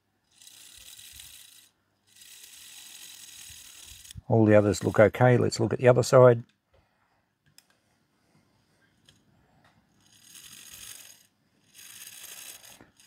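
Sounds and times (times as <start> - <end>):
gear teeth whirring rattle: 0.2 - 4.3, 9.9 - 13.0.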